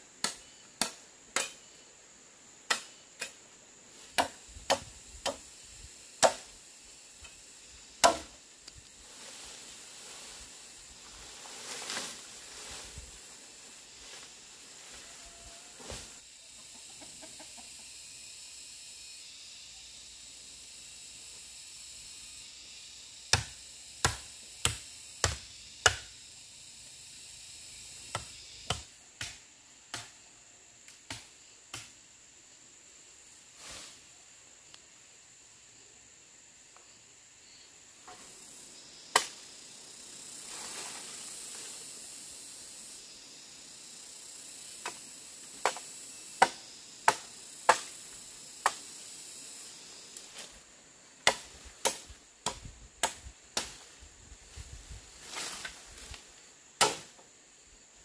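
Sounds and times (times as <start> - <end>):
tool chopping wood: 2.7 - 3.4, 4.1 - 5.4, 6.2 - 6.5, 8.0 - 8.4, 23.3 - 26.1, 28.1 - 30.1, 46.4 - 47.9, 51.2 - 53.8, 56.8 - 57.1.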